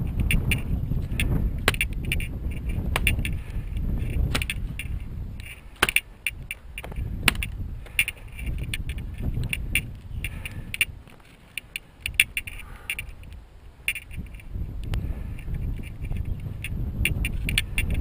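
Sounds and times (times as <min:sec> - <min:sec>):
low walking rumble: 0:00.0 - 0:18.0
wooden mallet knocks and clicks: 0:02.9 - 0:03.4.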